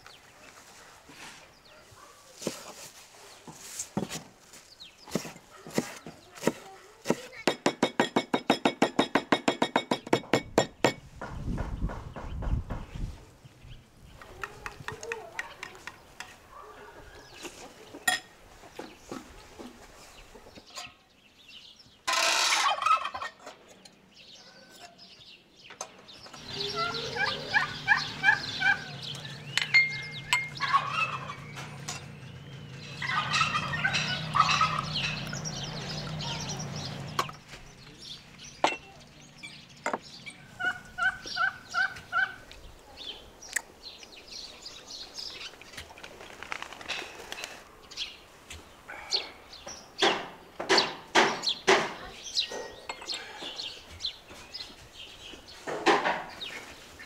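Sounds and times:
turkey gobbling: 0:22.5 - 0:23.4, 0:26.5 - 0:29.2, 0:30.0 - 0:31.7, 0:32.9 - 0:35.3, 0:40.4 - 0:42.4.

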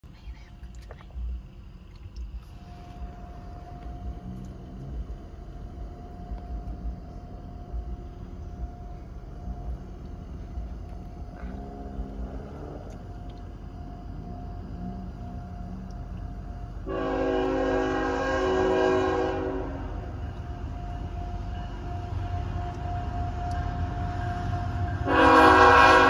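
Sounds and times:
train rumbling: 0:00.0 - 0:26.0
distant train horn: 0:11.3 - 0:13.0, 0:16.8 - 0:26.0
railroad crossing bell ringing: 0:18.8 - 0:26.0.

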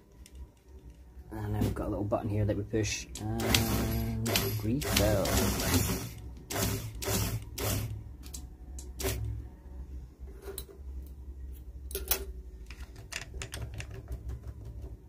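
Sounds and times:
sewing machine motor hum: 0:03.2 - 0:08.0, 0:08.9 - 0:09.4
short whirring bursts: 0:03.4 - 0:08.0.

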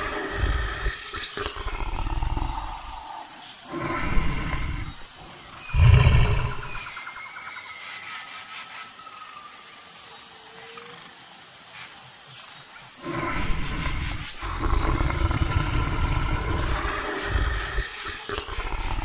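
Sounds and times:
bear roaring: 0:00.0 - 0:06.9, 0:13.0 - 0:19.0.

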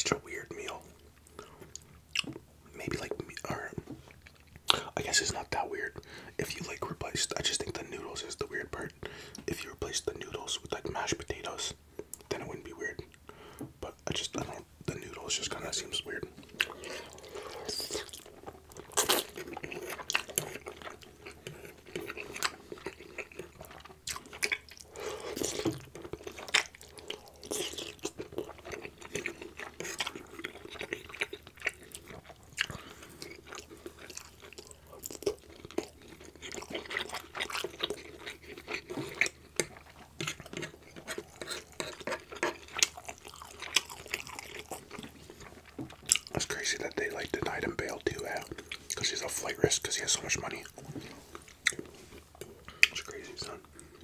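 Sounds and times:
wet chewing with clicks: 0:00.5 - 0:07.8, 0:08.4 - 0:54.0.

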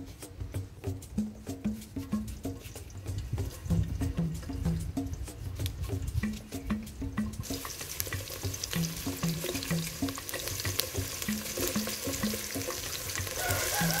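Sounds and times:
background music: 0:00.0 - 0:14.0
onions sizzling in hot oil: 0:07.4 - 0:14.0.

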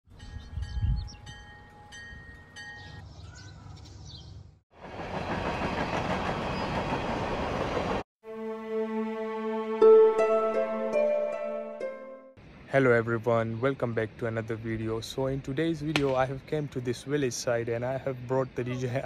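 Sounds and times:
train rushing past: 0:04.8 - 0:08.0
music: 0:08.2 - 0:12.4.

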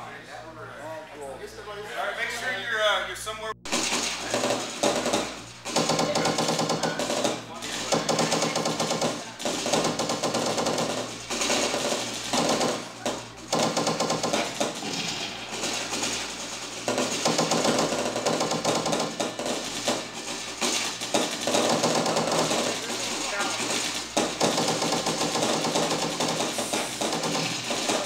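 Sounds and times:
machine-gun fire bursts: 0:03.7 - 0:28.0.

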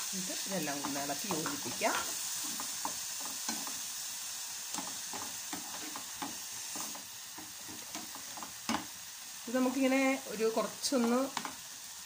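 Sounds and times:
carrot sizzling in pan: 0:00.0 - 0:12.0
spatula scraping pan: 0:00.6 - 0:03.9, 0:04.7 - 0:09.0.

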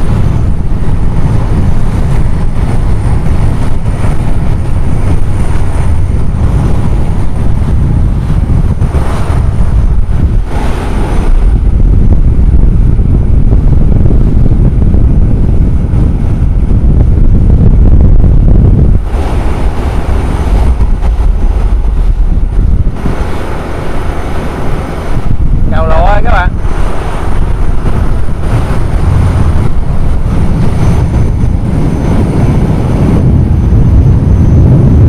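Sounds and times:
rushing water: 0:00.0 - 0:12.6, 0:18.9 - 0:32.9
boat engine rumbling: 0:00.0 - 0:35.0
wind noise: 0:00.0 - 0:35.0.

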